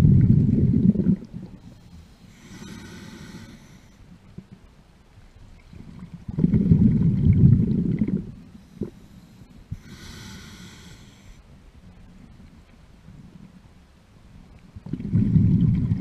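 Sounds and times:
exhaled bubbles rumbling underwater: 0.0 - 1.8, 5.6 - 9.0, 14.8 - 16.0
hissing inhale through regulator: 1.6 - 4.0, 8.5 - 11.5.

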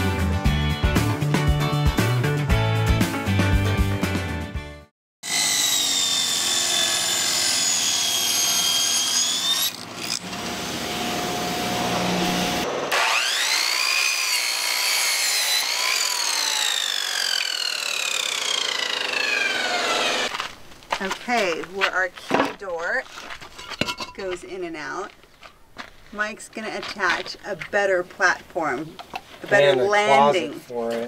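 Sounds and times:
miter saw whining and cutting: 5.2 - 20.4
table saw running: 5.2 - 20.4.

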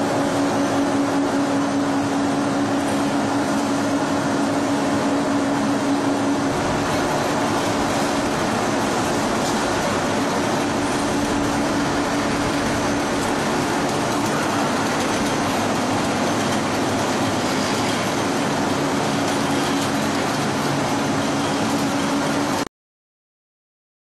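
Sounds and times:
rolling mill mechanical noise: 0.0 - 22.7.

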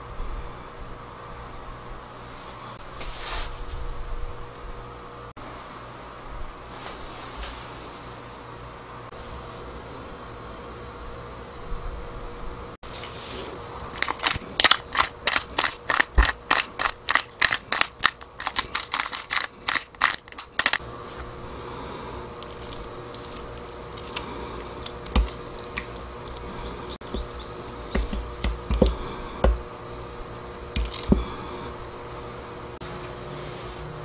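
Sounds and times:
pepper grinder crunching: 13.7 - 20.8, 22.4 - 29.6, 30.7 - 32.4.

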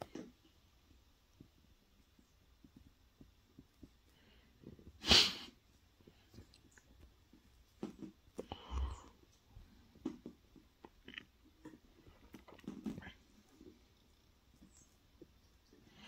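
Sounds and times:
dog sneezing: 5.0 - 5.6.

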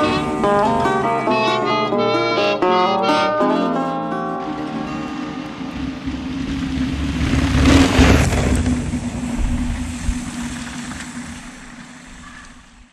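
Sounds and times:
bike tyres rushing on gravel: 5.1 - 12.9.

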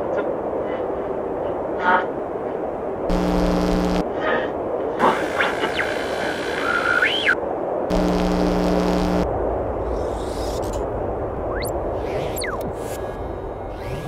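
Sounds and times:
low buzzing hum: 2.9 - 14.0
gliding electronic whine: 3.1 - 4.0, 5.0 - 10.8, 11.4 - 14.0
static bursts: 3.1 - 4.1, 5.0 - 9.3, 11.6 - 12.8.

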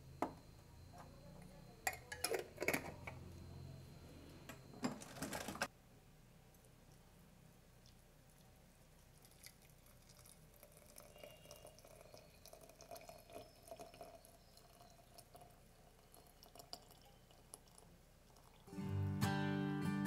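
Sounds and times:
water trickling into a glass mug: 7.8 - 18.7.

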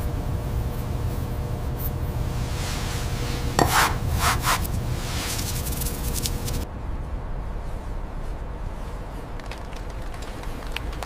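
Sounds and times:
steady low rumble: 0.0 - 11.0
tool scraping on clay: 3.3 - 6.6.

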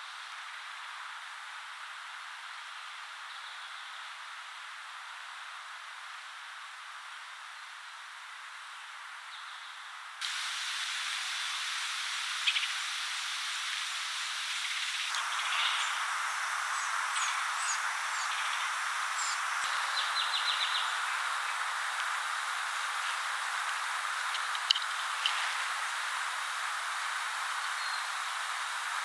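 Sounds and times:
woodland background hiss: 0.0 - 29.0
bird calls: 12.4 - 12.9, 13.7 - 16.1, 16.7 - 21.7, 24.1 - 26.0.

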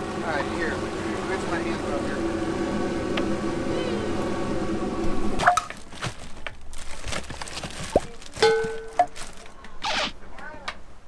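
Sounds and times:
mechanical hum: 0.0 - 11.0
packages clicking and knocking: 5.4 - 10.0.

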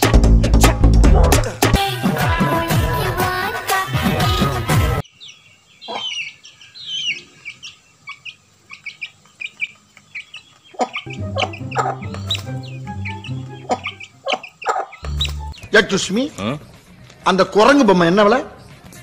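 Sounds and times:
background music with bass: 0.0 - 5.0, 11.1 - 14.2, 15.0 - 16.0
chickens peeping and clucking: 5.0 - 17.2.

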